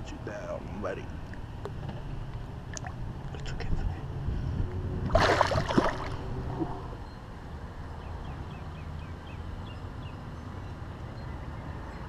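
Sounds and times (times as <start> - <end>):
water splashing: 2.7 - 3.4, 5.1 - 6.8.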